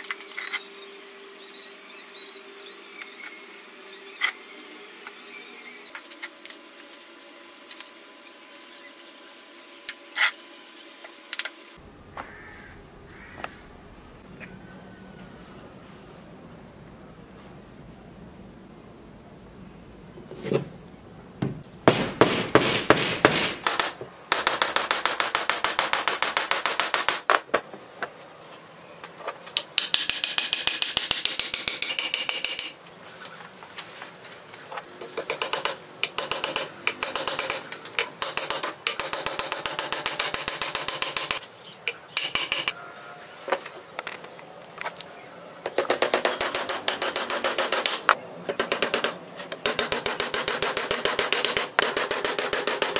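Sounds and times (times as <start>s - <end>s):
hammer driving nails into wood: 21.8s - 27.6s, 35.2s - 41.4s, 45.7s - 52.9s.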